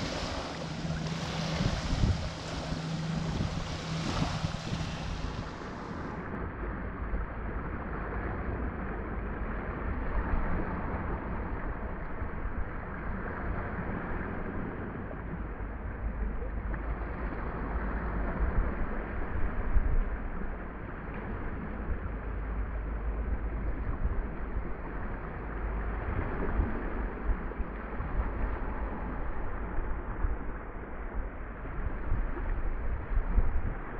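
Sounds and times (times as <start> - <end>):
small waves washing: 0.0 - 6.3
wind buffeting microphone: 0.0 - 7.1, 17.0 - 33.9.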